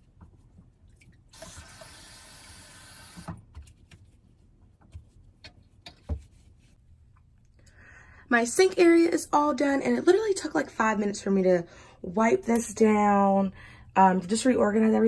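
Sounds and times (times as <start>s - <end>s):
sink tap running: 1.3s - 3.4s.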